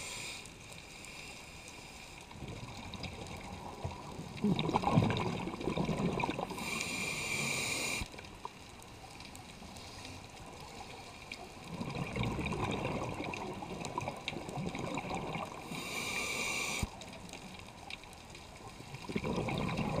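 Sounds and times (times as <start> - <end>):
high hissing inhalations: 0.0 - 2.1, 6.5 - 8.1, 15.7 - 17.0
burble of exhaled bubbles: 2.3 - 6.7, 11.4 - 15.8, 18.5 - 20.0.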